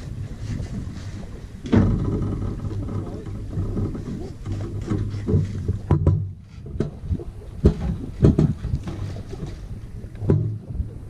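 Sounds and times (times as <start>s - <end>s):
water washing along hulls: 0.0s - 11.0s
wind buffeting microphone: 0.0s - 11.0s
sharp knocks and thuds: 1.6s - 10.9s.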